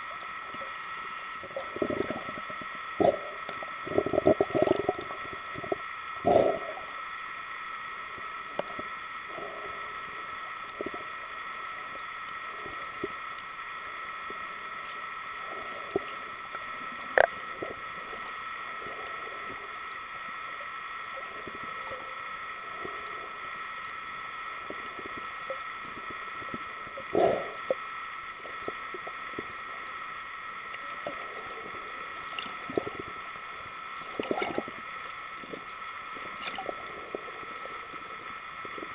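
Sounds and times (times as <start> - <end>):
underwater humming tones: 0.0 - 38.9
underwater gurgling bursts: 1.4 - 6.9, 24.7 - 29.7, 30.8 - 38.9.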